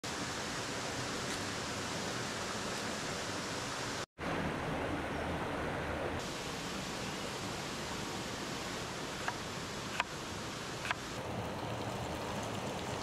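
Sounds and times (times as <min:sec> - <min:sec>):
stream rushing over rocks: 0:06.2 - 0:13.0.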